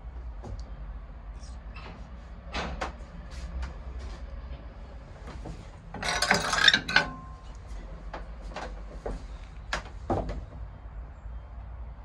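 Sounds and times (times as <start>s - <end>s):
metal door scrape and clank: 6.0s - 7.4s.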